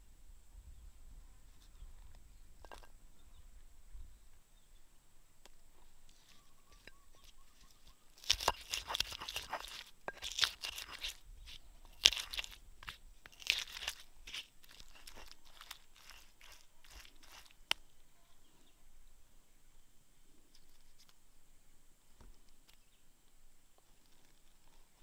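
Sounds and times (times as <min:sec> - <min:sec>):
pestle crushing in stone mortar: 0:06.2 - 0:17.8.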